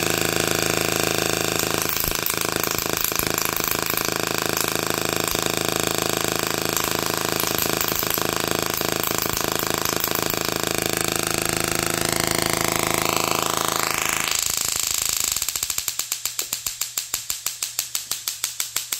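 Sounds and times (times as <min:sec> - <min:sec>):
tesla coil electric buzz: 0:00.0 - 0:15.6
sharp snapping spark pulses: 0:13.2 - 0:18.9.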